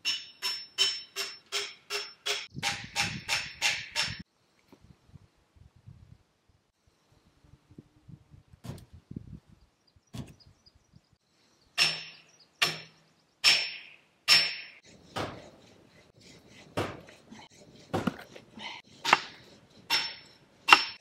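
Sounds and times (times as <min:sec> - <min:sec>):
axe chopping firewood: 0:11.8 - 0:15.5, 0:16.8 - 0:17.1, 0:17.9 - 0:18.4, 0:19.0 - 0:21.0.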